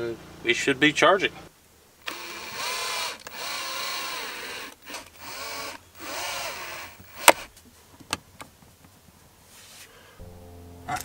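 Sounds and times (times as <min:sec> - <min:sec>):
cordless drill motor whine: 0:02.0 - 0:07.5.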